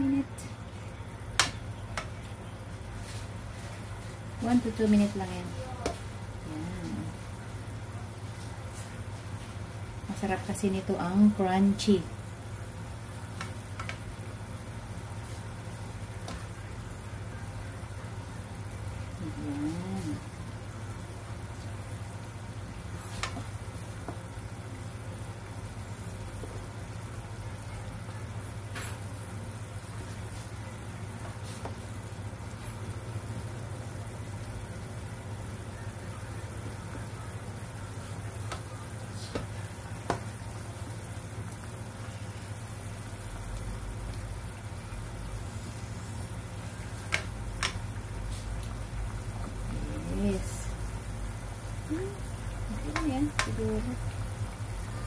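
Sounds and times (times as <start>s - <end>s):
water bubbling in a pan: 0.0s - 55.0s
spatula clicking against a pan: 52.9s - 53.6s.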